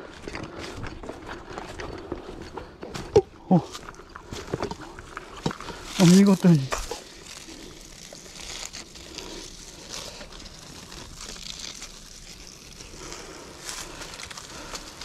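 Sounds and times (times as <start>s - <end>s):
dry leaves rustling: 4.3s - 15.0s.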